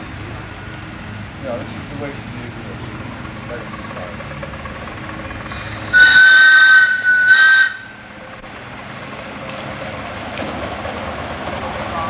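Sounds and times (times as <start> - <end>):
steam locomotive whistle: 5.6 - 8.1.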